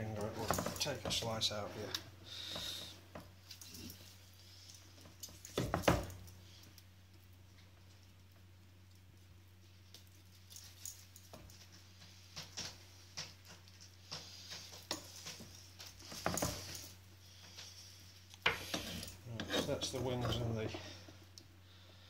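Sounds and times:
knife scraping on chopping board: 18.5s - 20.4s.

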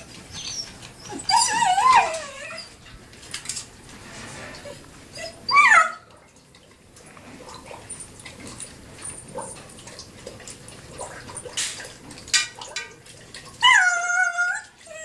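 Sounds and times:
puppies whining: 0.0s - 3.0s, 4.5s - 6.1s, 13.5s - 15.0s.

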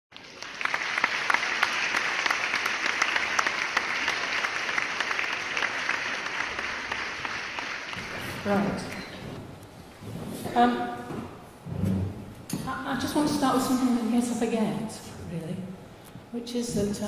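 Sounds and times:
audience applauding: 0.1s - 9.0s.

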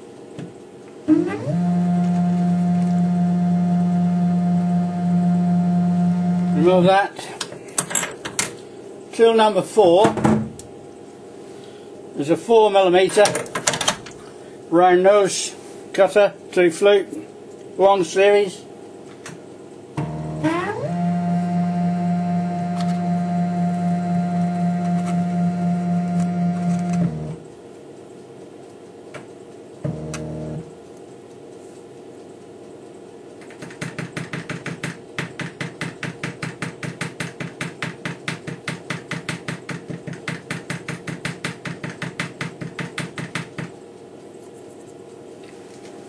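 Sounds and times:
milling machine motor hum: 1.1s - 6.9s, 20.0s - 27.4s, 29.8s - 30.7s.

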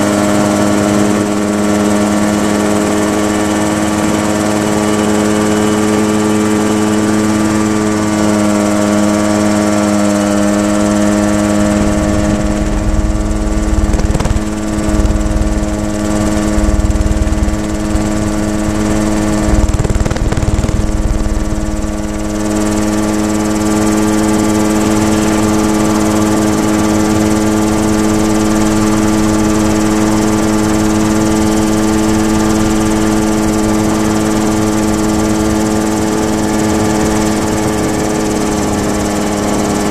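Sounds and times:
helicopter engine drone: 0.0s - 39.9s
low rumble: 11.8s - 23.1s.

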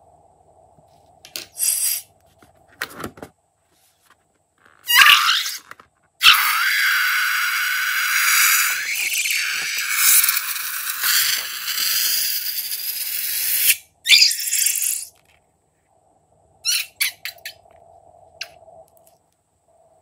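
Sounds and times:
paint hissing from balloon neck: 1.6s - 2.1s.

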